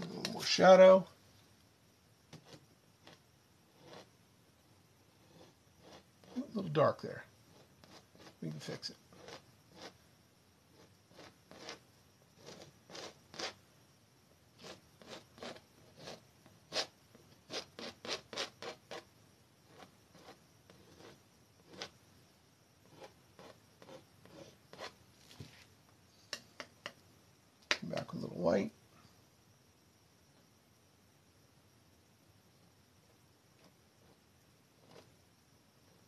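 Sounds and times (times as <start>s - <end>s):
palette knife scraping paint on canvas: 2.4s - 4.1s, 5.2s - 6.7s, 7.5s - 8.4s, 9.1s - 10.0s, 10.7s - 11.8s, 12.4s - 13.6s, 14.6s - 19.0s, 19.7s - 22.0s, 22.8s - 25.0s, 34.8s - 35.1s.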